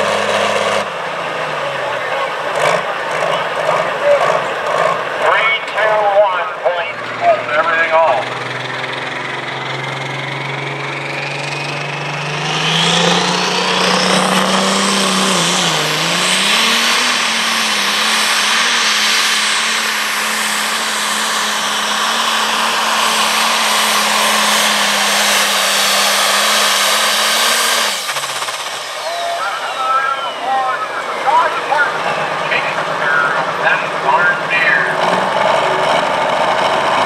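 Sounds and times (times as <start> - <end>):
diesel engine at full throttle: 0.0 - 37.0
turbo whine rising in pitch: 7.2 - 33.9.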